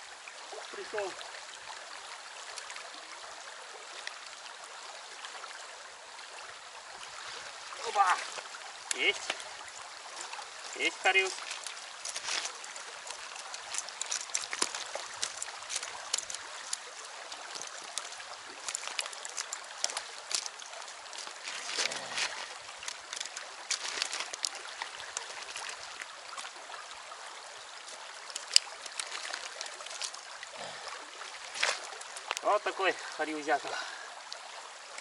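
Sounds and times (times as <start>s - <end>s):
river running over stones: 0.0s - 35.0s
pebbles clicking and rattling: 11.4s - 21.9s, 22.8s - 25.8s.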